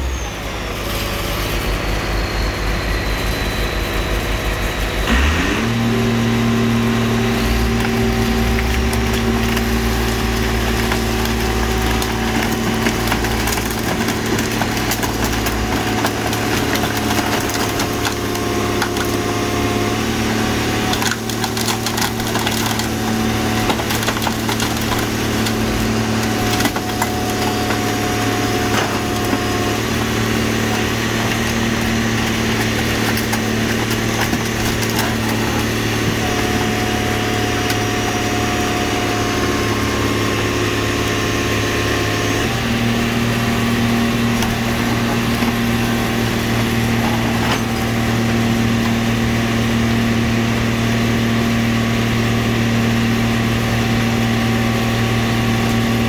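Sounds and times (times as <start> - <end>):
engine and hydraulic press running: 0.0 - 56.0
crushing metal and glass cracks: 7.0 - 42.5, 44.0 - 49.8.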